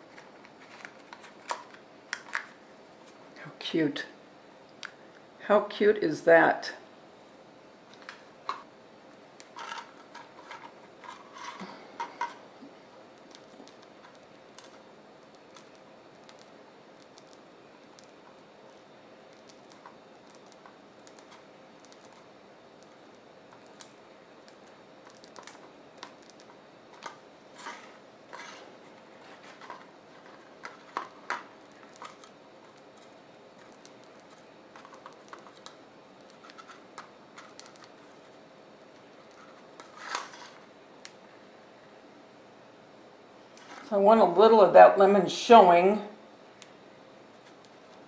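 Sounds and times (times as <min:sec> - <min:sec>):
faint steady hum: 0:00.0 - 0:48.0
piping bag crinkling: 0:13.0 - 0:41.1.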